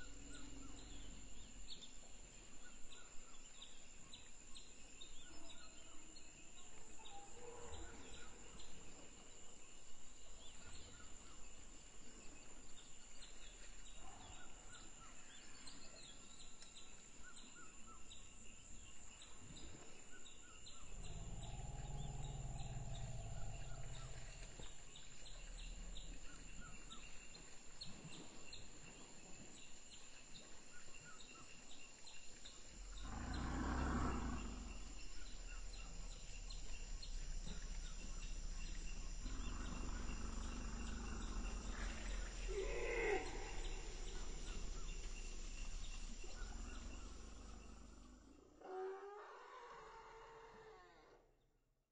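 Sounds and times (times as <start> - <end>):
insects chirring: 17.3 - 48.8
bird calls: 20.7 - 28.3, 32.4 - 48.3.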